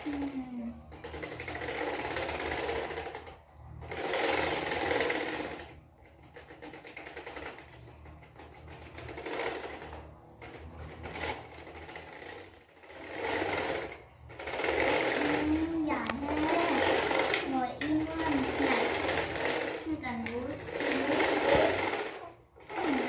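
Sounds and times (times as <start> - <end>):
low machine hum: 0.0 - 23.0
small machine rattling: 0.0 - 23.0.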